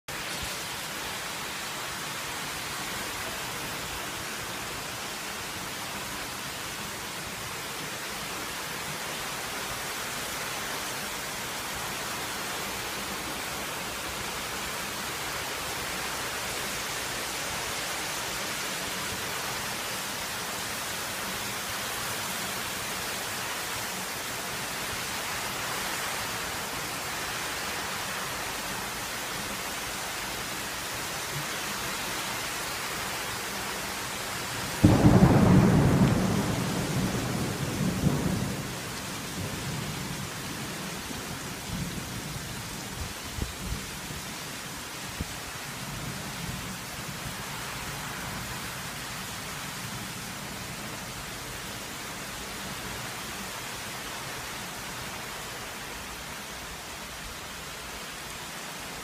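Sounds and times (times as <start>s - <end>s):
heavy rain pouring: 0.0s - 59.0s.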